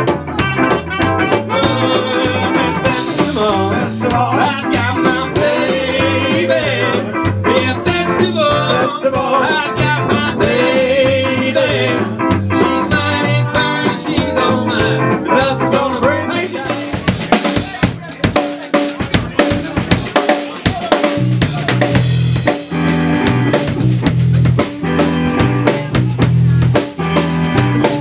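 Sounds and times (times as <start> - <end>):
electric guitar: 0.0 - 17.6, 21.0 - 28.0
bass guitar: 0.0 - 28.0
drum kit: 0.0 - 28.0
lead singer: 1.3 - 17.8
harmonising voice: 1.3 - 18.2.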